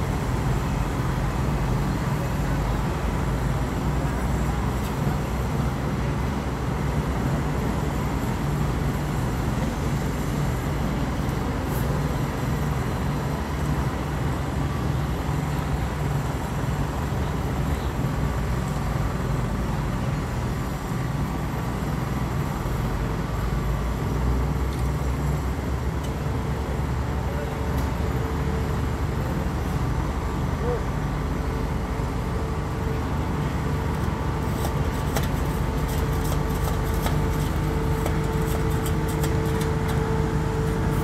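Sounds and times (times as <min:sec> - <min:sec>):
heavy machinery engine droning: 0:00.0 - 0:41.0.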